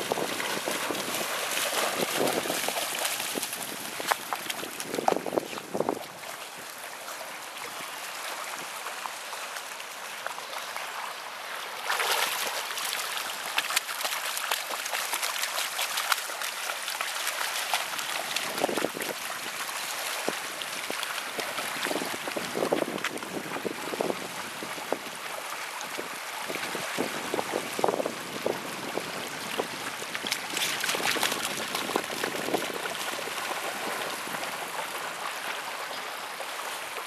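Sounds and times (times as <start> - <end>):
puppy splashing in shallow water: 0.0 - 37.0.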